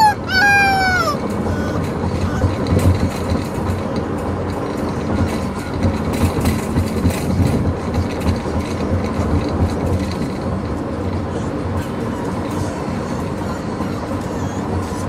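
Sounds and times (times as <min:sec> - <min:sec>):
car road noise rumble: 0:00.0 - 0:15.0
small rattles and knocks: 0:01.2 - 0:11.2.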